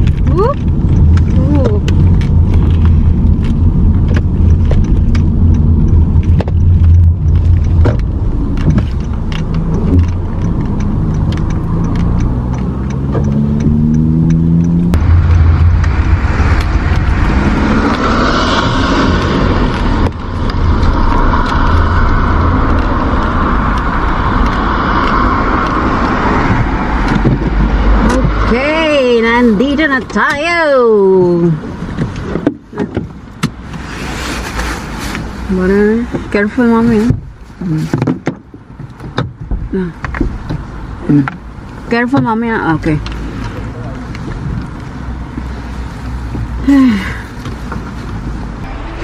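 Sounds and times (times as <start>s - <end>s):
light ticks: 0.0s - 17.2s
car engine and tyre rumble: 0.0s - 49.0s
hissy road noise: 0.0s - 49.0s.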